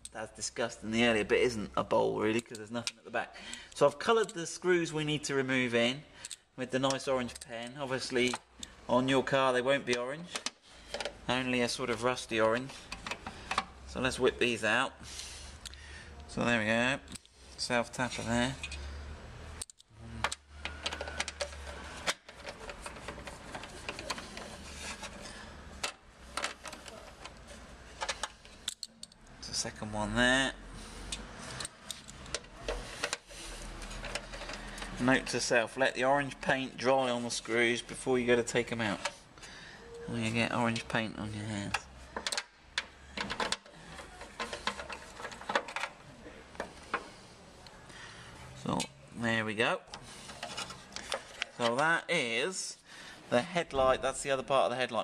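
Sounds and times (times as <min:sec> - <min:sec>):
screw metallic clicks and scrapes: 0:09.9 - 0:13.8, 0:18.0 - 0:18.9, 0:19.6 - 0:29.3, 0:31.0 - 0:35.3, 0:41.6 - 0:47.1, 0:49.9 - 0:51.9.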